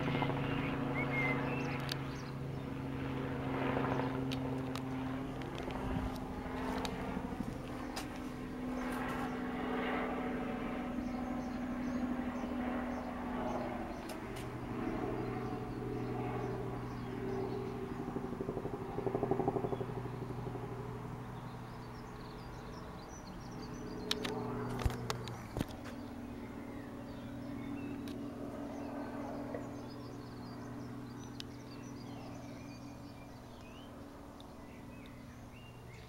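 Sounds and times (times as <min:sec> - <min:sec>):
helicopter engine and rotor drone: 0:00.0 - 0:36.0
sharp clicks: 0:24.1 - 0:25.8.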